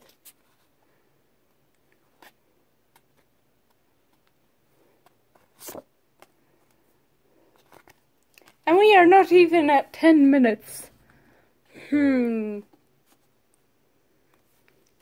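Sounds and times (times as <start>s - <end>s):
cards rustling and flicking: 1.8s - 8.6s.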